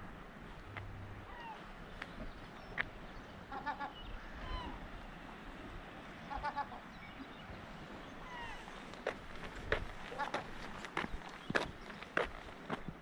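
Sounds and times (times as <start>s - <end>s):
gulls calling: 1.2s - 5.0s, 6.2s - 7.3s, 8.0s - 12.8s.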